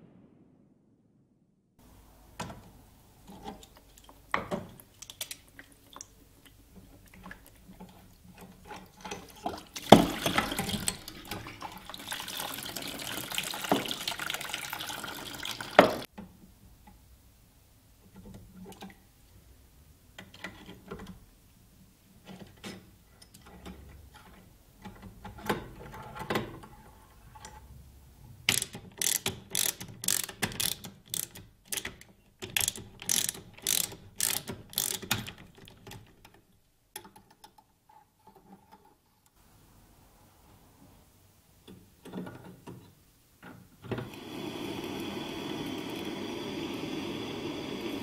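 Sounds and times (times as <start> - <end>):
metal-on-metal clicks: 3.3 - 5.5, 28.5 - 38.9
fast ratcheting clatter: 28.5 - 31.8, 32.5 - 35.5
steady hiss: 42.9 - 48.0.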